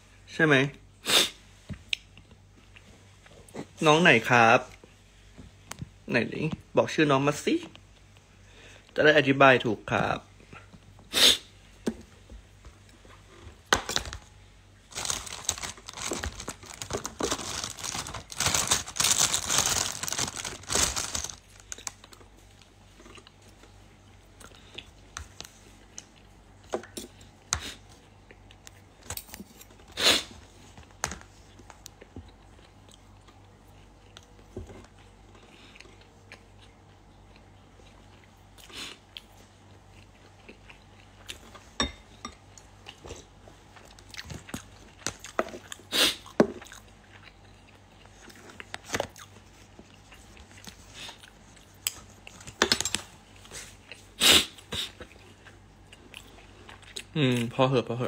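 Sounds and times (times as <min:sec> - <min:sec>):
packaging tearing and crinkling: 0:14.9 - 0:22.0.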